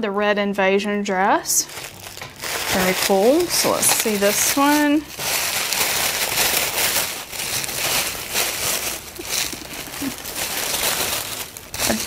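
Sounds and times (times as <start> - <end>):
tissue paper rustling: 1.6 - 12.0.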